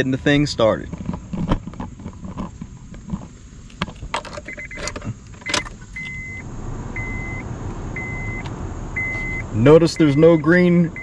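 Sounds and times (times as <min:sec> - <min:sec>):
car engine starting and running: 0:00.0 - 0:11.0
warning chime beeping: 0:05.5 - 0:07.4, 0:08.0 - 0:08.4, 0:09.0 - 0:11.0.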